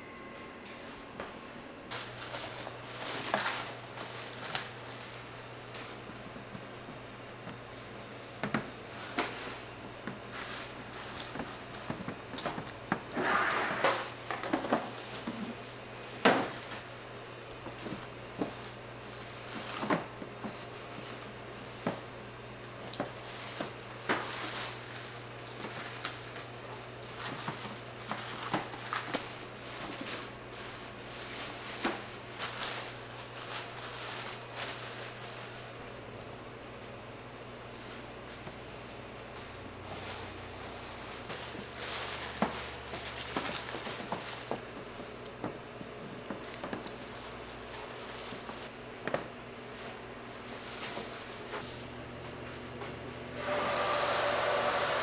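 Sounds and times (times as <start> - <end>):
steady low hum: 0.0 - 55.0
plastic wrap crinkling: 1.9 - 6.1, 17.6 - 22.1, 22.7 - 37.0, 39.2 - 44.8, 46.2 - 48.7.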